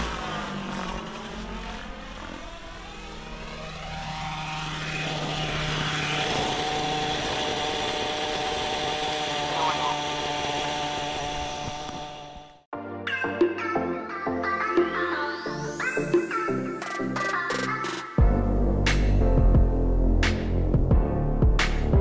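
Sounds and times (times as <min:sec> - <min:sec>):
rc helicopter engine and rotor: 0:00.0 - 0:12.7.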